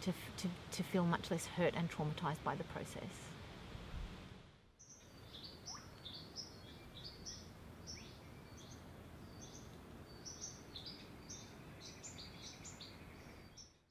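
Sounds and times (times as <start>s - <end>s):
birds chirping: 4.8s - 13.8s.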